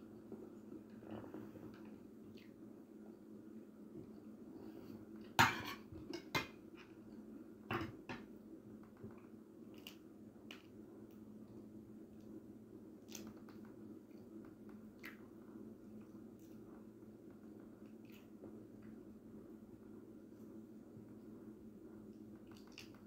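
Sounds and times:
steady low hum: 0.0s - 23.0s
plate and utensils clinking: 5.4s - 5.9s.

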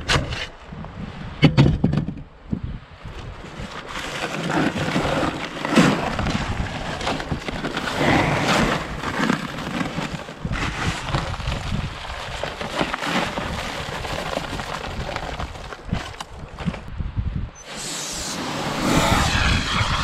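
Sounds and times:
paper sack rustling: 3.4s - 16.9s
concrete mix pouring: 3.8s - 16.2s.

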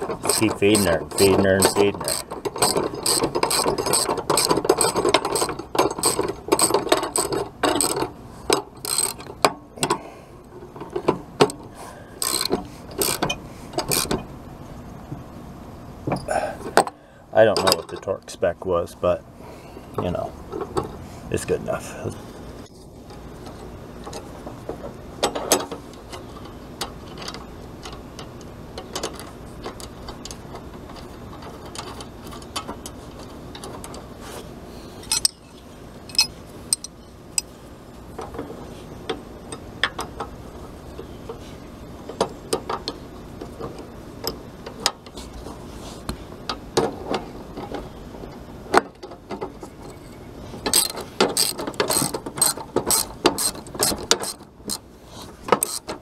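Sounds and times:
socket ratchet clicking: 0.2s - 8.0s, 8.8s - 9.3s, 12.2s - 14.1s, 50.7s - 54.8s, 55.5s - 55.9s
steel tools clinking: 35.0s - 37.5s.

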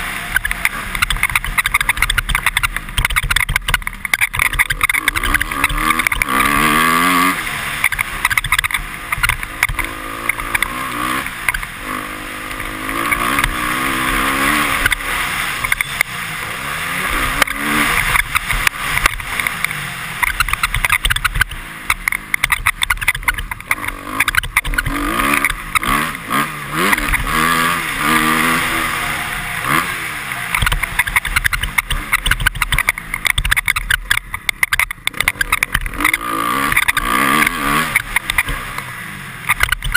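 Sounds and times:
motorcycle engine revving: 0.0s - 39.9s
helmet visor squeaking: 0.4s - 6.0s, 20.2s - 25.5s, 30.6s - 37.0s, 39.5s - 39.9s.

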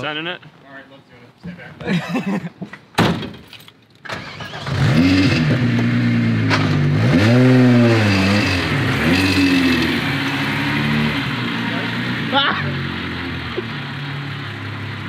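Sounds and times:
sharp knock: 2.9s - 3.5s
car engine cranking and revving: 4.0s - 15.0s.

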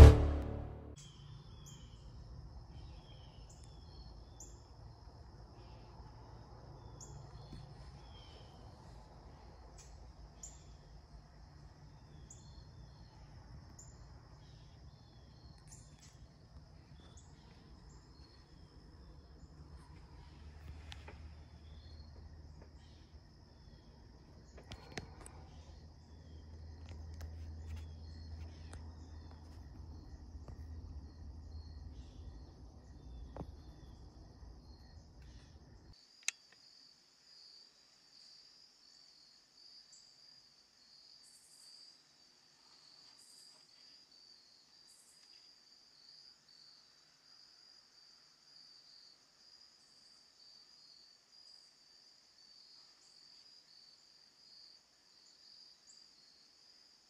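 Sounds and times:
low rumble: 0.0s - 1.0s
insect chorus trilling: 21.2s - 57.0s
sharp click: 36.2s - 36.5s.

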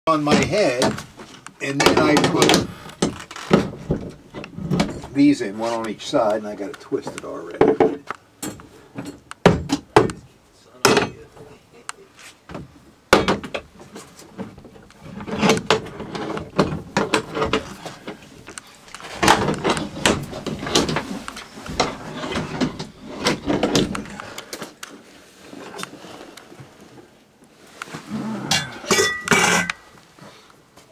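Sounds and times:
knocks and clunks of handling: 0.2s - 11.6s, 12.5s - 25.0s.

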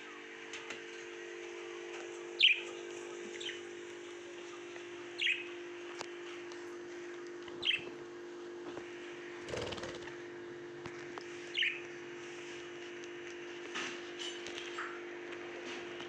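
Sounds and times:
budgerigars chirping: 2.4s - 2.6s, 5.2s - 5.4s, 11.5s - 11.8s.

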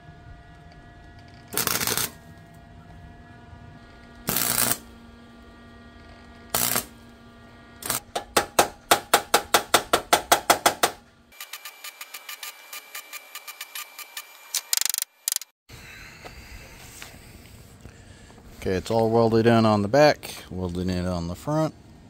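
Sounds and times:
welder crackling tacks: 1.2s - 2.2s, 4.1s - 4.9s, 6.0s - 7.2s, 7.8s - 12.2s.

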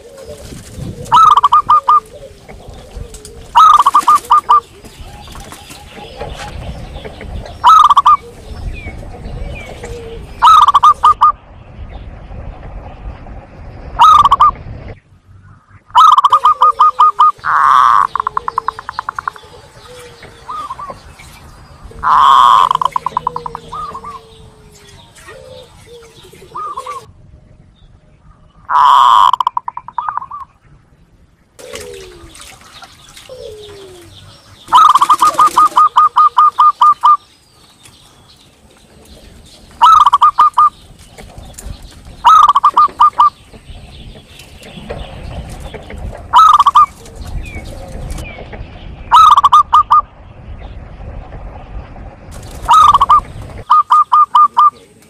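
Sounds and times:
dove cooing: 0.0s - 11.4s, 14.0s - 14.6s, 16.0s - 21.1s, 21.9s - 27.1s, 28.7s - 30.5s, 31.6s - 32.5s, 33.3s - 37.2s, 39.8s - 43.4s, 46.3s - 48.2s, 49.1s - 50.0s, 52.6s - 55.0s.

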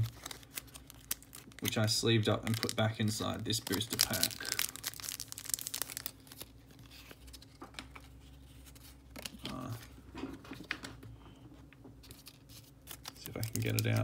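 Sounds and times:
foil wrapper crinkling: 0.0s - 7.9s, 12.1s - 14.0s.

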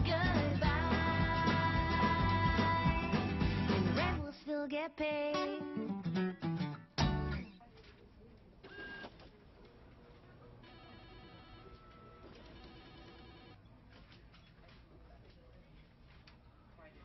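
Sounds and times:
electronic telephone ringing: 10.7s - 13.6s.

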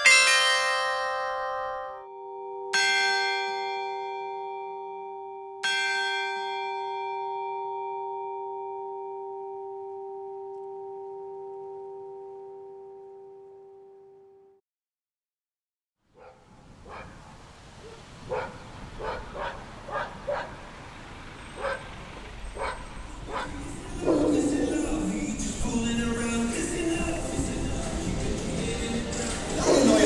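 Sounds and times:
bell ringing: 0.0s - 13.7s.

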